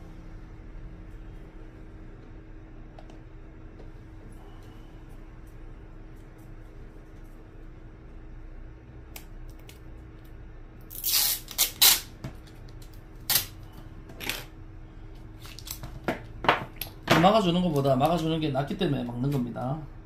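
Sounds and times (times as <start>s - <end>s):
faint hum: 0.0s - 20.0s
adhesive tape pulled off roll: 10.8s - 12.1s, 13.2s - 13.6s.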